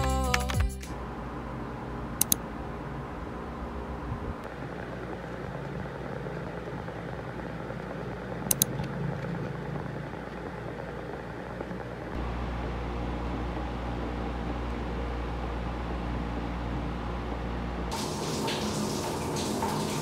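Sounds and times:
background hum: 0:00.0 - 0:20.0
deep rumble: 0:00.9 - 0:18.0
sharp clicks: 0:02.2 - 0:02.4, 0:08.5 - 0:09.4.

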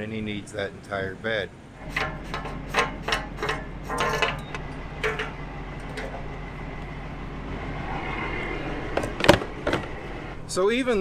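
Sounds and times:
diesel engine idling: 0:00.0 - 0:10.8
metal clanks and clicks: 0:01.8 - 0:06.4.

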